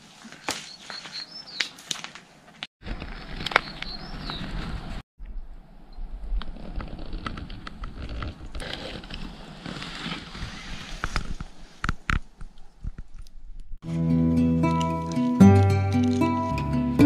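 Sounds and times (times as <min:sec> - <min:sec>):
clicks and crackles: 0:06.3 - 0:13.8.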